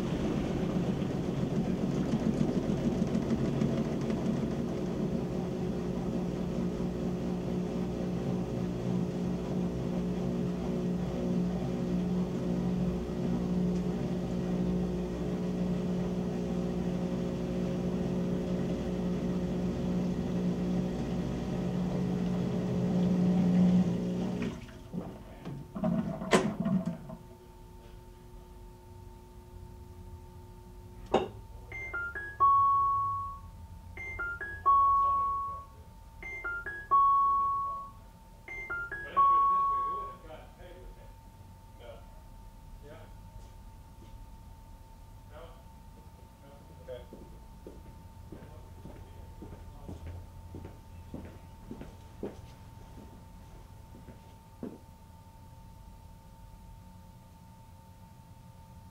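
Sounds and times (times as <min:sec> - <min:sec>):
washing machine motor hum: 0:00.0 - 0:40.5
washer end-of-cycle chime: 0:31.7 - 0:40.2.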